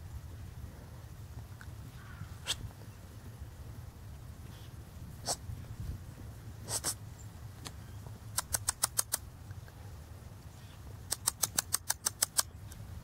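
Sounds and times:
dog snuffling in snow: 6.6 - 7.0.

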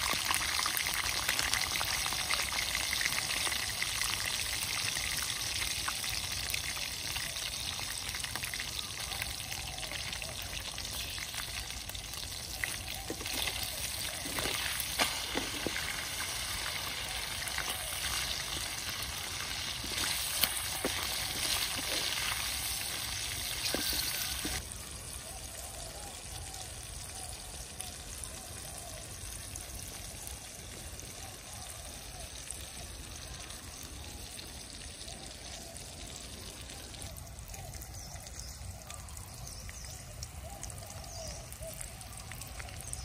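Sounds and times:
frying in hot oil sizzle: 0.0 - 43.0
spatula scraping a pan: 13.1 - 24.6.

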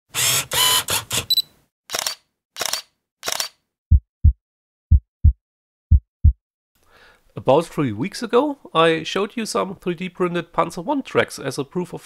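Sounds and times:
camera clicks and whirs: 0.2 - 3.6
shutter-like clicks: 1.9 - 3.6.

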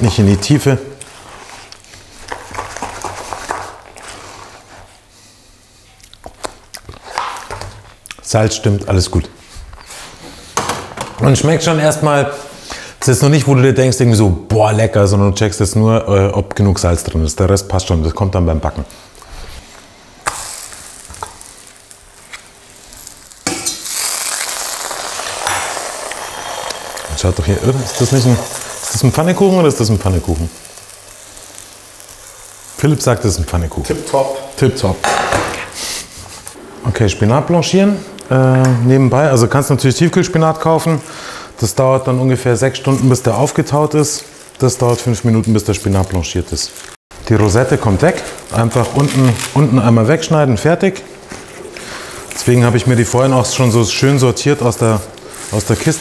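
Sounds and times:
pancake sizzling in a pan: 19.6 - 36.2, 41.1 - 50.0, 51.8 - 56.0.

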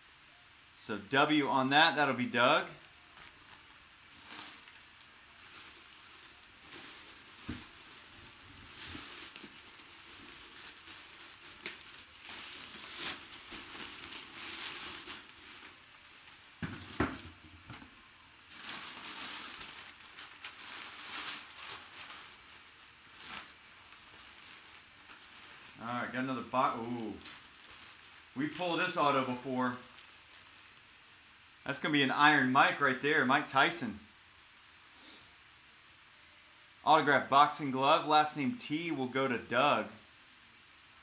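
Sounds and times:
fabric bag crinkling: 2.7 - 30.9.

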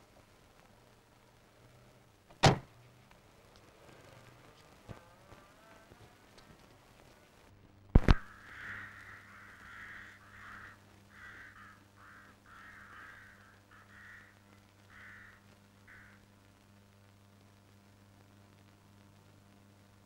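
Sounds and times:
sharp loud double pop: 2.4 - 2.7
crows cawing: 8.0 - 16.3.

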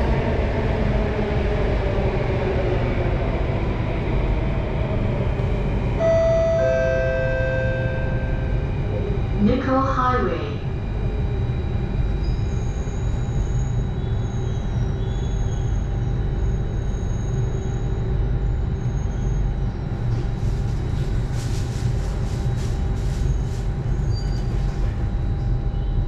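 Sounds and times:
thin constant whine: 5.2 - 26.0
train wheels rumbling on rail: 11.4 - 26.0.

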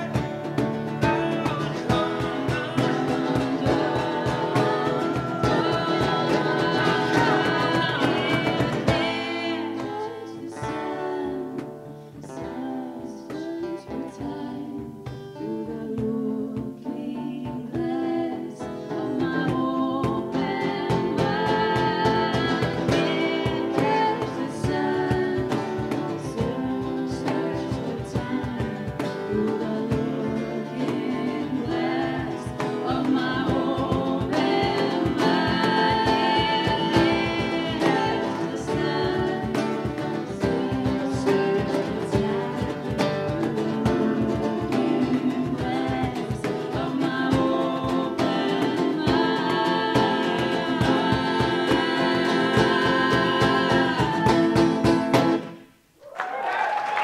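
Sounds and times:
women singing together: 0.0 - 55.6
cajon beat: 0.0 - 55.7
acoustic guitars strummed: 0.0 - 55.8.

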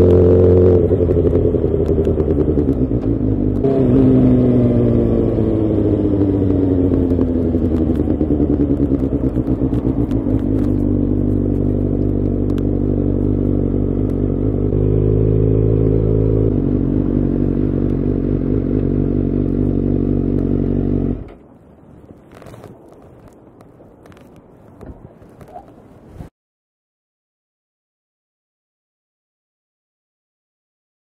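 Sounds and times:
motorcycle engine at low revs: 0.0 - 21.6.

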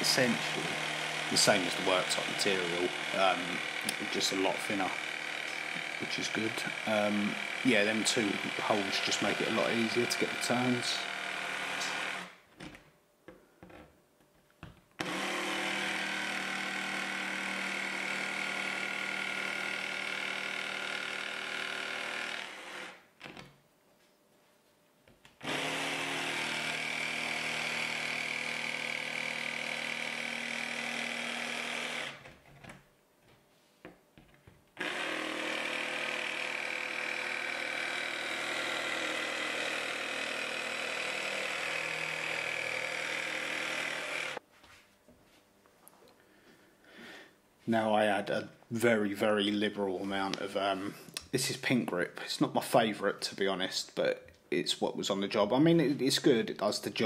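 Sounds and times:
cordless jigsaw cutting board: 0.0 - 12.8, 15.0 - 23.5, 25.4 - 32.8, 34.8 - 44.4, 49.8 - 51.2.

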